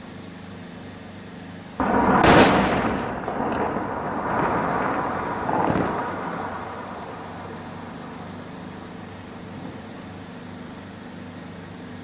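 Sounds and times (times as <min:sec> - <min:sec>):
explosive blast boom: 0:01.8 - 0:08.5
rolling rumble of building collapse: 0:01.8 - 0:09.8.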